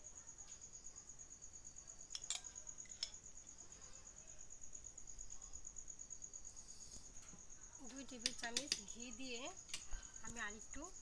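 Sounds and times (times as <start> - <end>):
cricket trilling: 0.0 - 11.0
spoon clicking against pot: 2.1 - 3.2, 8.2 - 8.9.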